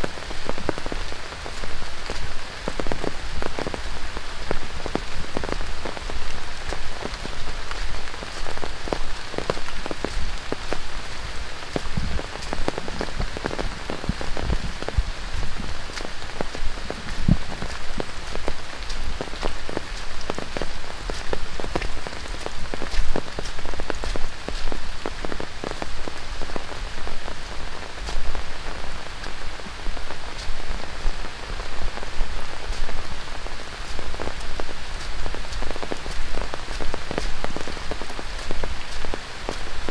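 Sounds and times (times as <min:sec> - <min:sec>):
heavy rain on foliage: 0:00.0 - 0:39.9
raindrop impacts: 0:00.0 - 0:39.9.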